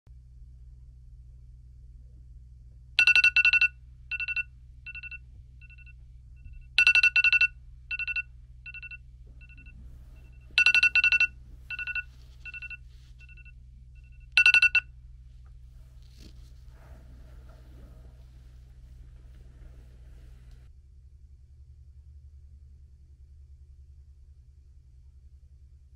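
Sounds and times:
phone alarm beeping: 0:03.0 - 0:14.9.

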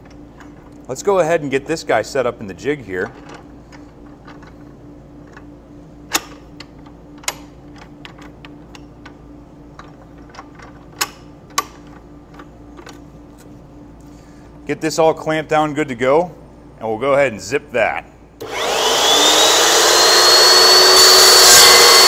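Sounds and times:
steady low hum: 0:00.0 - 0:19.2
metal clicks and clunks: 0:06.1 - 0:13.5.

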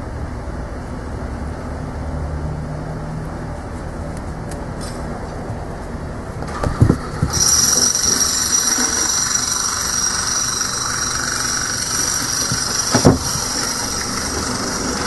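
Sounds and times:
small motor whirring with whine: 0:06.5 - 0:15.0
short thump: 0:12.9 - 0:13.4.

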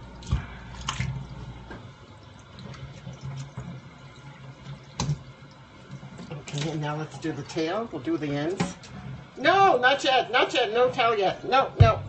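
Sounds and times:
faucet running into metal sink: 0:00.0 - 0:11.2
water splash: 0:00.2 - 0:01.4.

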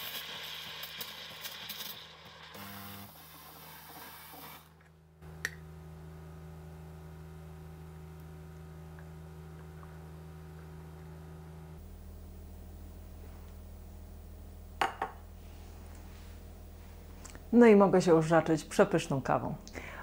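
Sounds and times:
low hum of sustained tones: 0:05.2 - 0:18.9.

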